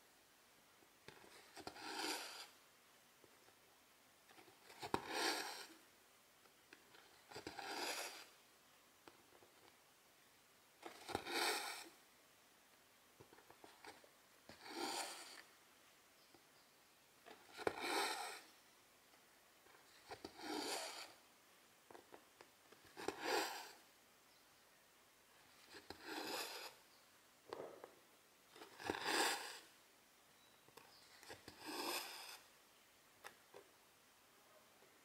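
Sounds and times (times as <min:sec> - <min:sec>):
thread rasping through fabric: 0:01.1 - 0:02.6, 0:04.3 - 0:05.8, 0:06.7 - 0:08.4, 0:19.7 - 0:21.2, 0:25.5 - 0:26.8, 0:30.9 - 0:32.5.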